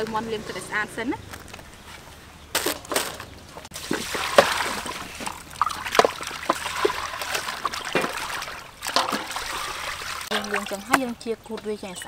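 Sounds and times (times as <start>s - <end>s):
water poured from a dipper: 3.7s - 10.9s
water splashing in a steel bowl: 3.7s - 11.2s.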